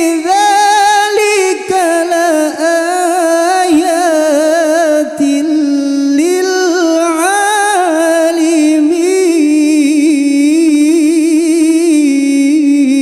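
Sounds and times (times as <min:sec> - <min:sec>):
man chanting into a microphone: 0:00.0 - 0:13.0.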